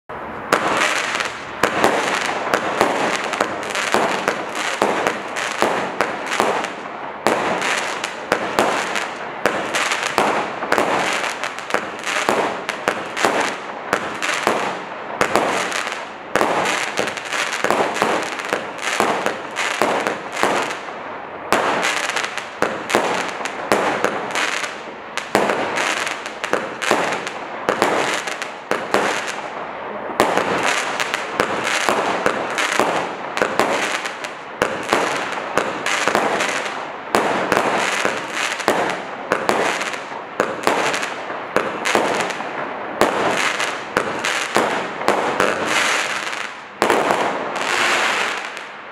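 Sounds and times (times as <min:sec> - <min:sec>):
roman candle fireworks firing: 0:00.1 - 0:48.9.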